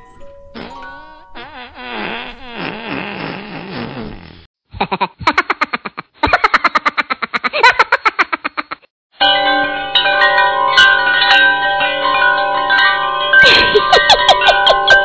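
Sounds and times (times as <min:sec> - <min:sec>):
chime-like background music: 0:00.0 - 0:01.4, 0:09.2 - 0:15.0.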